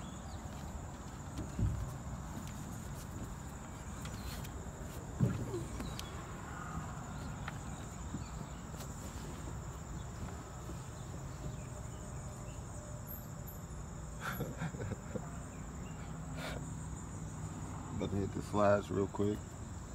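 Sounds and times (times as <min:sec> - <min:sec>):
insects droning: 0:00.0 - 0:19.9.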